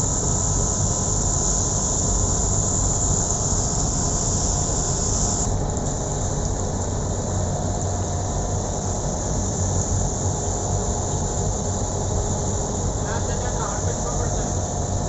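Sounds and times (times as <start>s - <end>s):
electric motor hum: 0.0s - 5.5s.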